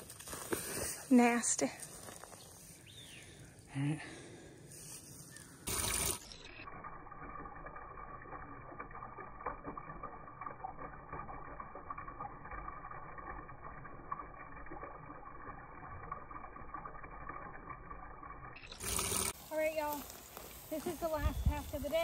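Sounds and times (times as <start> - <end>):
water pouring into plastic tank: 5.7 - 19.4.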